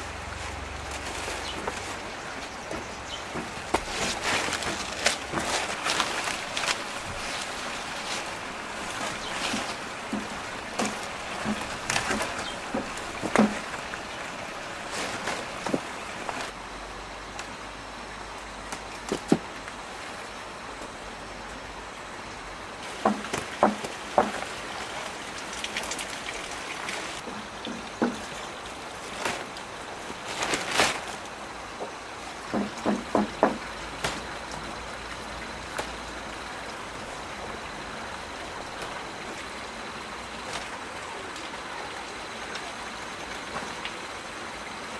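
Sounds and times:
rain hiss: 0.0s - 44.9s
short rustles and knocks: 0.4s - 16.6s
scattered knocks: 23.0s - 24.4s, 32.5s - 33.7s.

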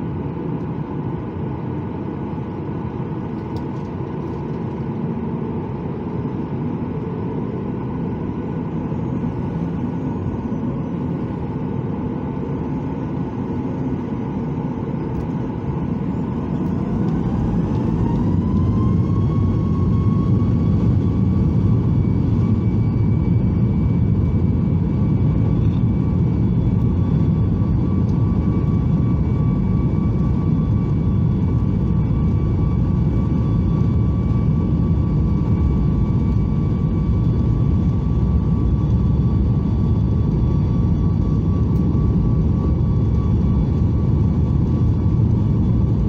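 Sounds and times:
rising engine whine: 0.0s - 46.0s
jet engines spooling up: 7.6s - 46.0s.

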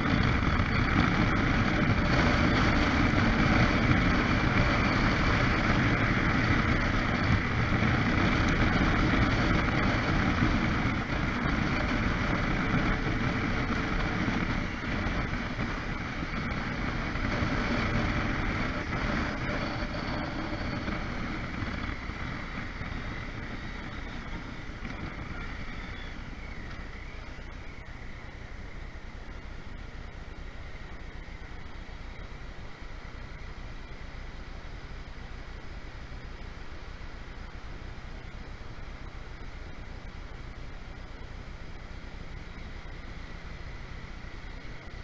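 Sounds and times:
wind rush: 0.0s - 27.0s
motorcycle road noise: 0.0s - 45.0s.

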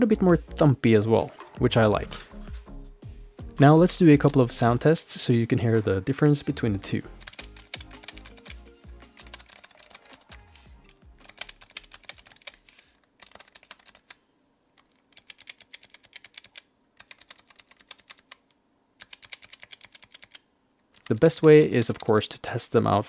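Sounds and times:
background music: 0.0s - 12.7s
keyboard key clicks: 19.0s - 22.2s.

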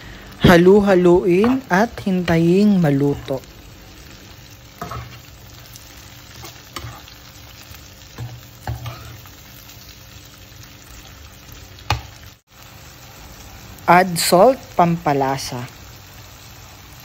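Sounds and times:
food sizzling in frying pan: 0.0s - 17.0s
spatula scraping pan: 4.8s - 7.2s, 8.2s - 9.3s.

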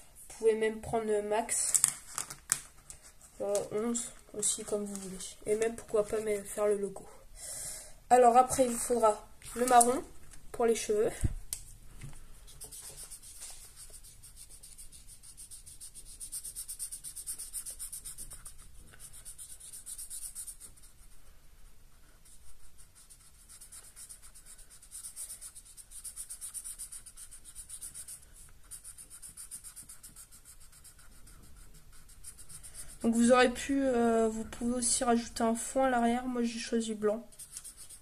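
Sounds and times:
felt-tip pen scribbling on paper: 12.5s - 21.2s, 22.0s - 33.6s, 37.4s - 38.0s.

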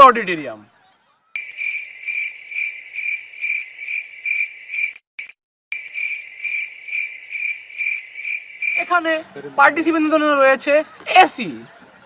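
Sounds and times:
crickets chirping: 1.4s - 9.2s.

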